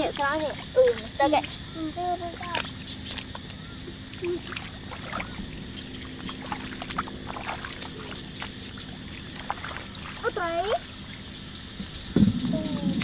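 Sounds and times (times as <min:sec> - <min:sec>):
hands sloshing through muddy water: 0:00.0 - 0:11.1
small splashes and drips: 0:00.0 - 0:11.2
wet clicks: 0:02.4 - 0:04.7.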